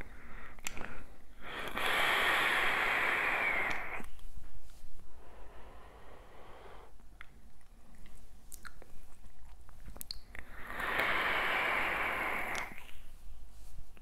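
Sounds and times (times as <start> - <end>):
breathy vapour exhale: 1.4 - 4.0, 10.4 - 12.8
e-cigarette drag hiss: 1.4 - 4.1, 10.6 - 12.9.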